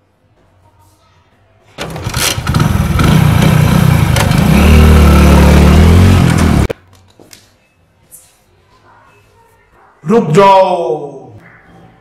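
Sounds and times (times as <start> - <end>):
motorcycle engine revving: 1.8 - 6.7.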